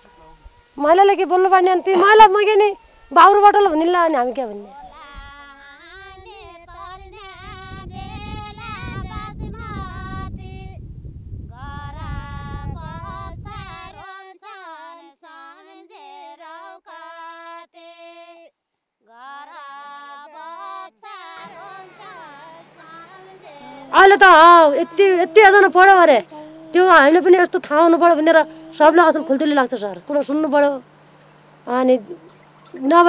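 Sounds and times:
woman singing folk melody: 0.0 - 10.8, 11.5 - 31.0, 31.6 - 33.0.

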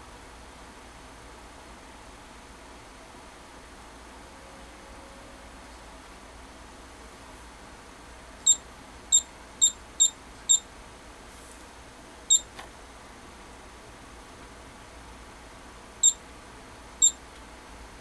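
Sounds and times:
short high keypad beeps: 8.5 - 10.6.

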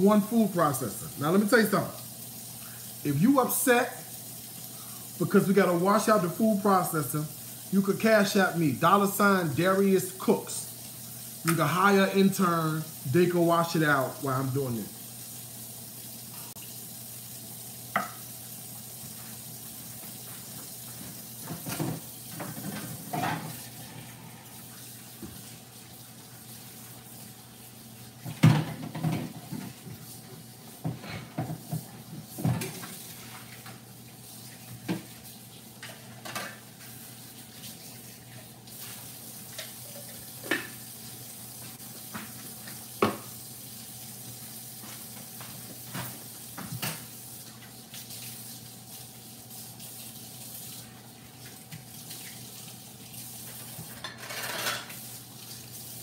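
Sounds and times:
water running at a sink: 0.0 - 56.0
plastic parts clattering in sink: 53.9 - 54.9.

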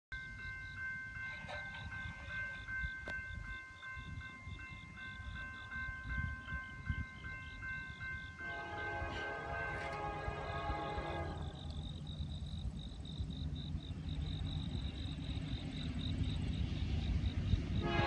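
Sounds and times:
crossing signal bell ringing: 0.1 - 12.8
locomotive air horn: 8.4 - 11.8, 17.8 - 18.0.

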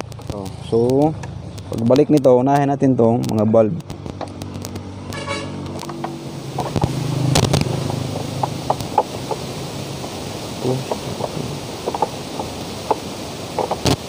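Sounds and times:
vehicle engine passing: 2.8 - 13.8.

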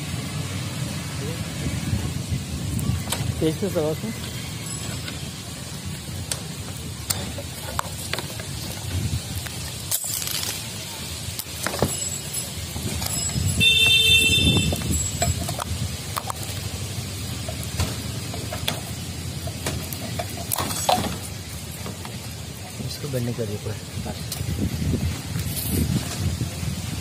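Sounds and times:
loud steady tone: 11.9 - 15.5.

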